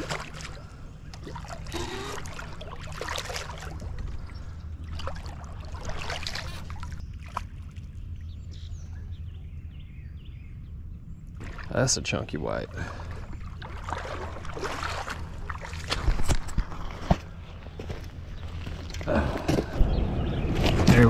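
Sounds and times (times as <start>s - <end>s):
fish splashing in water: 0.0s - 7.8s, 11.4s - 11.8s, 12.8s - 16.4s
steady low rumble: 0.0s - 21.0s.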